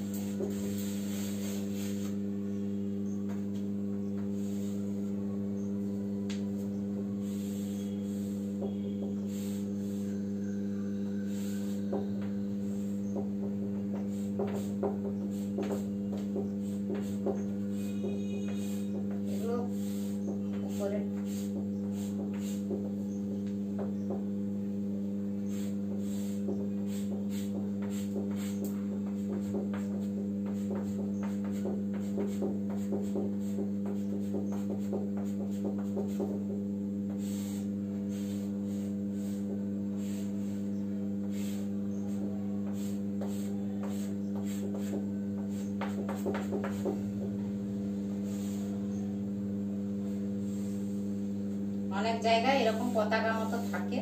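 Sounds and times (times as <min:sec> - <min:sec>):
steady low hum: 0:00.0 - 0:54.0
chalk tapping on a blackboard: 0:00.1 - 0:02.2, 0:07.2 - 0:10.1, 0:11.3 - 0:24.3, 0:25.4 - 0:47.4, 0:48.2 - 0:49.0.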